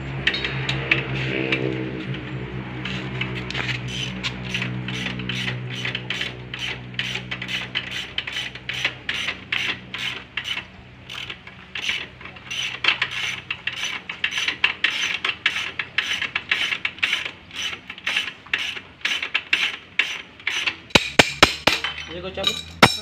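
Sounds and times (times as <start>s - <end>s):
ratchet wrench clicking: 2.8s - 23.0s.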